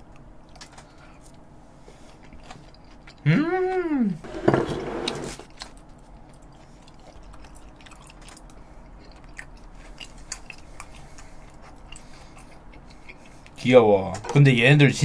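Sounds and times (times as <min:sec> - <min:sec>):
person chewing food: 0:00.0 - 0:03.2, 0:05.4 - 0:13.6.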